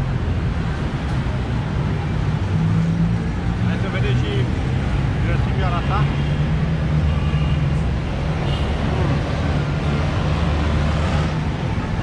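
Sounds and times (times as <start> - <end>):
city background noise: 0.0 - 12.0
vehicle engines droning: 0.0 - 12.0.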